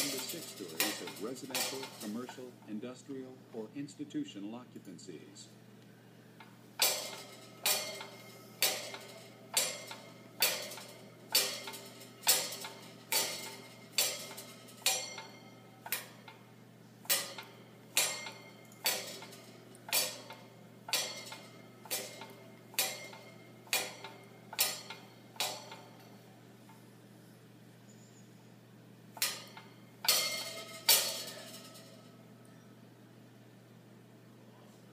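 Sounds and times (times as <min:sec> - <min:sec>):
metallic clanking: 0:00.0 - 0:02.9, 0:06.4 - 0:26.8, 0:29.2 - 0:32.4.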